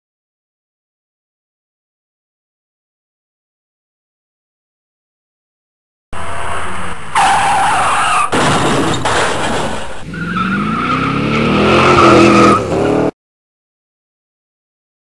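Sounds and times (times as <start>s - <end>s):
tyre squeal: 6.2s - 9.2s, 11.8s - 13.1s
car engine revving: 6.2s - 13.1s.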